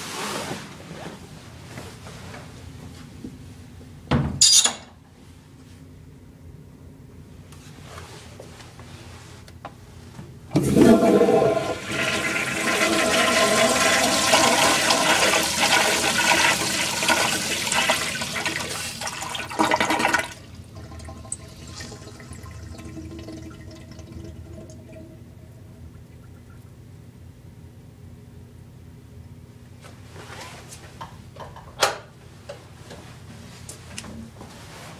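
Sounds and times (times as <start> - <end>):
toilet flushing: 10.5 - 26.7
water trickling as bowl refills: 19.2 - 25.2.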